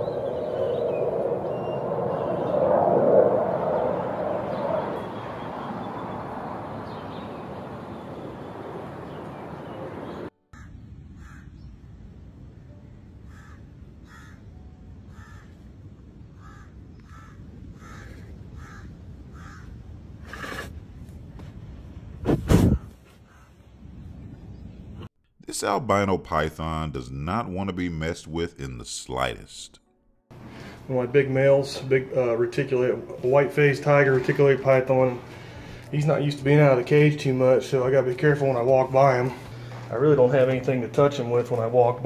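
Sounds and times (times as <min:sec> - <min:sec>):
bird calling: 0:00.0 - 0:02.5.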